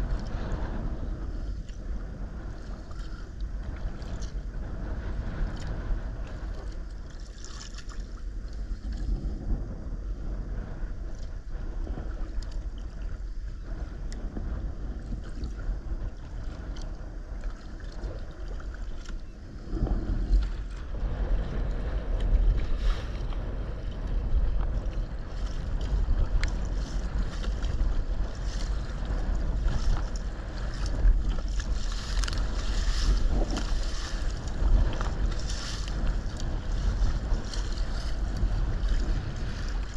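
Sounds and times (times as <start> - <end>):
water splashing against kayak hull: 0.0 - 9.4, 11.1 - 39.9
wind buffeting microphone: 0.0 - 39.9
paddle stroke splashes: 24.8 - 39.9.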